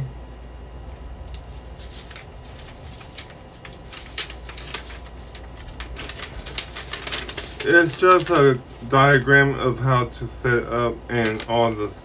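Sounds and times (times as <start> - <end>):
steady low hum: 0.0 - 12.0
paper crackling and rustling: 0.9 - 9.3, 11.1 - 11.9.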